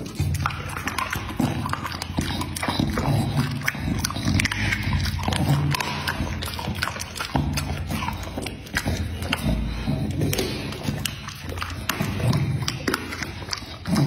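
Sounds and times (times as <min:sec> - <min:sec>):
dog chewing and lip smacking: 0:00.0 - 0:14.0.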